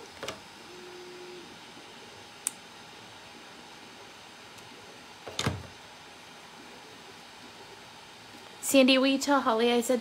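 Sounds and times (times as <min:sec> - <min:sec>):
steady low hiss: 0:00.0 - 0:10.0.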